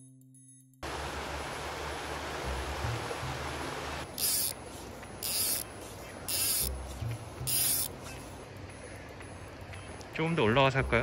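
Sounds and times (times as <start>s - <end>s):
fly reel ratchet buzzing: 4.1s - 4.6s, 5.2s - 6.8s, 7.4s - 8.0s.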